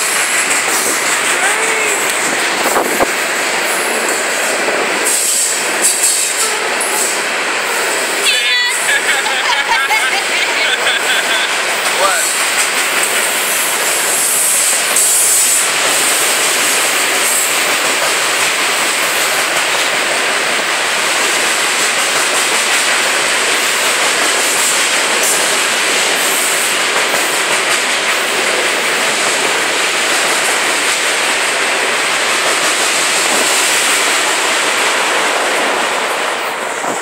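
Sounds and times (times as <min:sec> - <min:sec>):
freight train wheels clattering: 0:00.0 - 0:08.3, 0:10.8 - 0:37.0.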